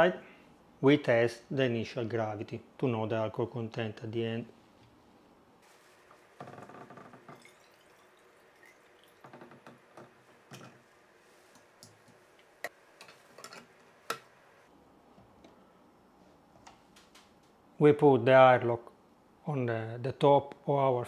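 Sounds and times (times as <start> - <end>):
liquid pouring into a jar: 6.5 - 10.0.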